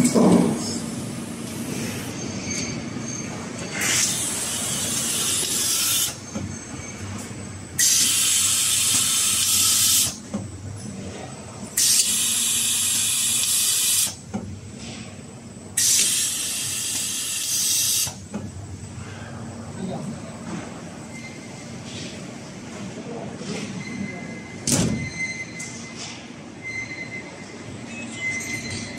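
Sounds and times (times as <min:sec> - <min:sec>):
laser welder hissing bursts: 0:07.8 - 0:10.2, 0:15.8 - 0:18.2.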